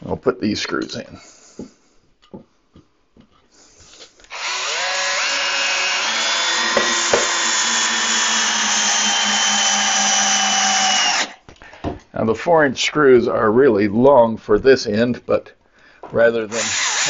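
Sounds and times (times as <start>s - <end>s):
cordless drill driving screw: 4.2s - 11.4s, 16.4s - 17.0s.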